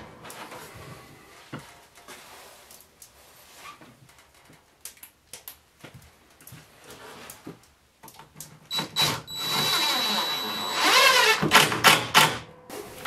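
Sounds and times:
cordless drill driving screw: 8.7s - 11.4s.

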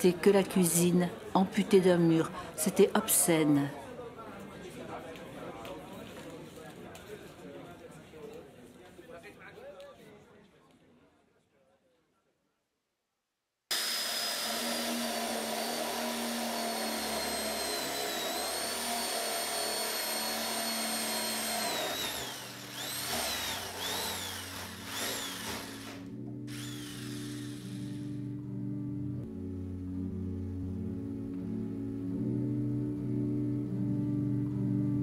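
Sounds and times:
power tool whining: 13.7s - 28.2s
low sustained music notes: 22.3s - 35.0s.

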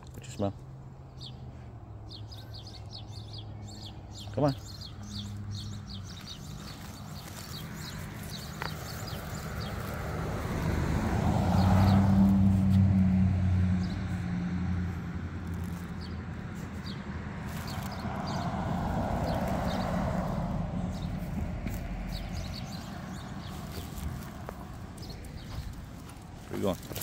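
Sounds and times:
car driving past: 8.6s - 16.2s, 16.8s - 25.6s.

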